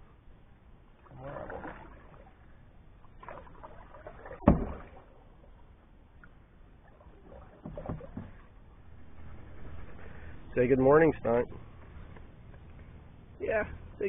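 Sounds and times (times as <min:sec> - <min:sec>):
paddle swishing through water: 0:01.0 - 0:10.8.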